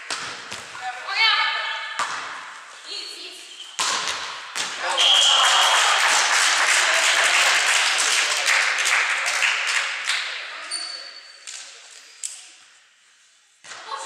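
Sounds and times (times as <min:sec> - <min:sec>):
referee's whistle: 0:04.8 - 0:06.0
crowd clapping and cheering: 0:04.8 - 0:10.4.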